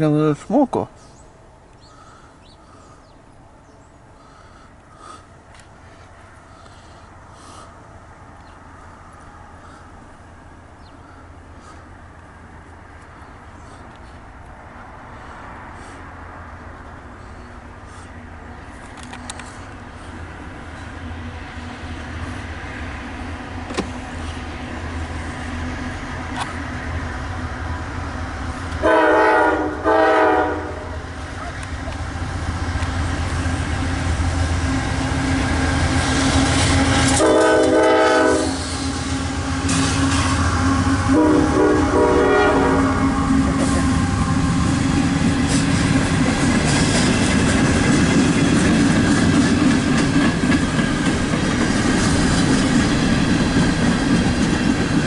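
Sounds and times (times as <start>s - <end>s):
locomotive engines rumbling: 0.0s - 55.0s
locomotive air horn: 28.8s - 31.2s, 36.1s - 44.9s
wheels clacking over rail joints: 43.5s - 55.0s.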